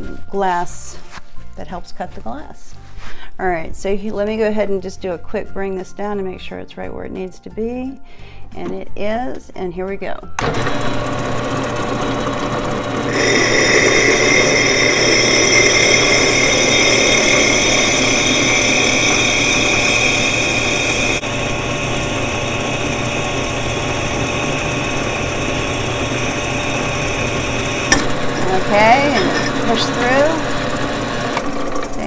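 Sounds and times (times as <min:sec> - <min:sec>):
drill press grinding glass: 0:10.4 - 0:32.0.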